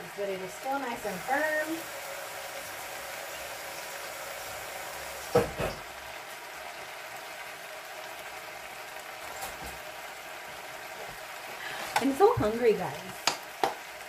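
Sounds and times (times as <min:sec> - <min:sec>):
stew simmering in a pot: 0:00.0 - 0:14.0
loud knocks: 0:05.3 - 0:05.9.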